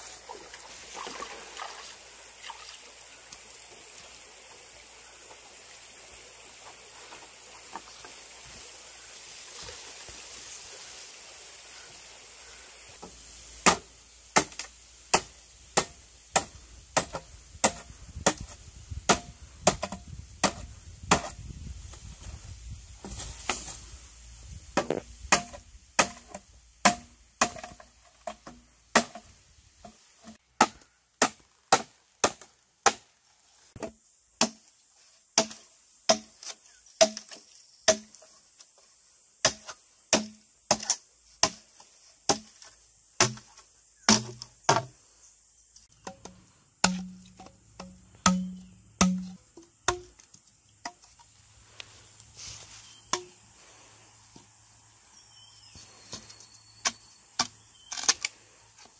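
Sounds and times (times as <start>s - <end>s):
steady high hiss: 0.0s - 30.4s, 31.2s - 58.9s
machete chopping bamboo: 13.0s - 21.4s, 24.8s - 33.1s, 33.8s - 34.7s, 35.4s - 38.2s, 39.4s - 45.0s, 46.0s - 51.1s.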